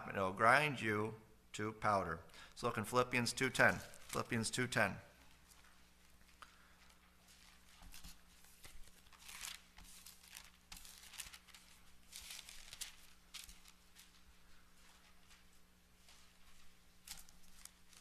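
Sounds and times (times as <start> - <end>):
thin pages being flipped: 7.2 - 14.2, 17.0 - 18.0.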